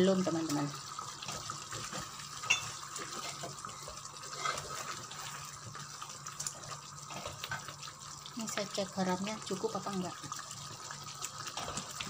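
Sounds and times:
wooden spatula stirring curry: 0:03.0 - 0:05.9.

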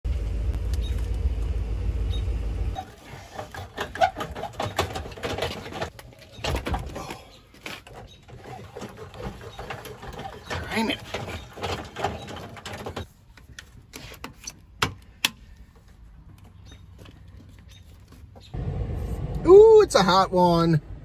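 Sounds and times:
metal clicks and clanks: 0:07.6 - 0:15.4.

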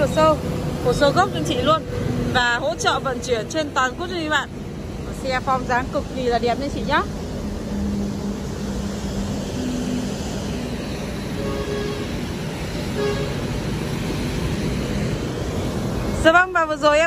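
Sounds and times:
road traffic noise: 0:00.0 - 0:17.0
car horn toots: 0:11.4 - 0:12.1, 0:13.0 - 0:13.4.

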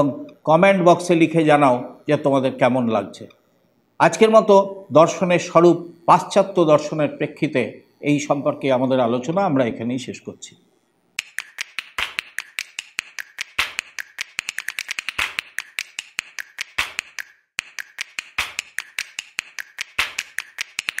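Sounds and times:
sharp clicks and taps: 0:11.2 - 0:21.0.

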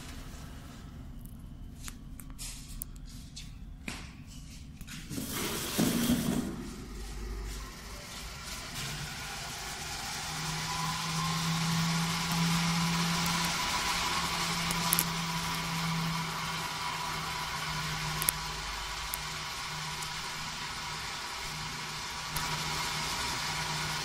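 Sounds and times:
aerator motor hum: 0:05.2 - 0:24.0.

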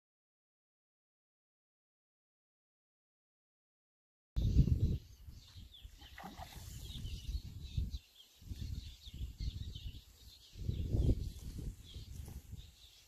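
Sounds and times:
faint high bird chirps: 0:04.4 - 0:13.0
wind rumbling on microphone: 0:04.4 - 0:13.0.

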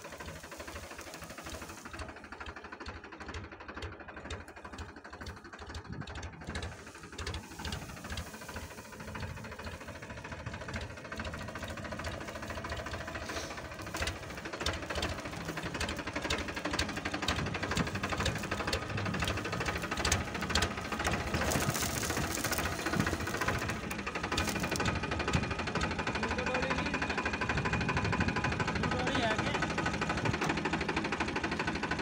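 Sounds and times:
tractor diesel engine running: 0:00.0 - 0:32.0.

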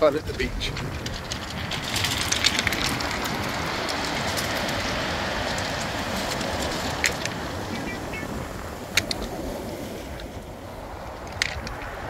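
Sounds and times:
waves breaking on beach: 0:00.0 - 0:12.0
wind rumbling on microphone: 0:00.0 - 0:12.0
pebbles clicking and rattling: 0:00.4 - 0:08.1, 0:11.2 - 0:11.9.

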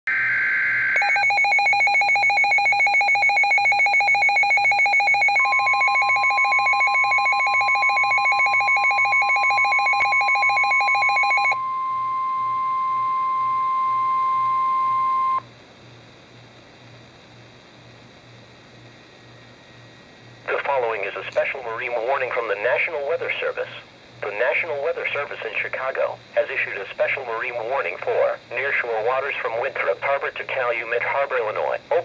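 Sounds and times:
steady warning alarm tone: 0:00.1 - 0:15.4.

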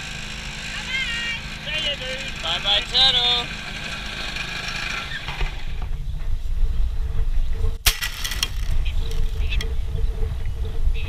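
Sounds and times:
wind buffeting microphone: 0:04.4 - 0:11.0.

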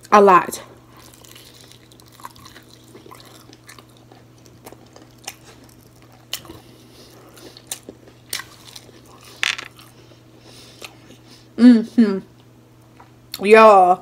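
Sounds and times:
chewing crispy fried food: 0:00.9 - 0:11.3.

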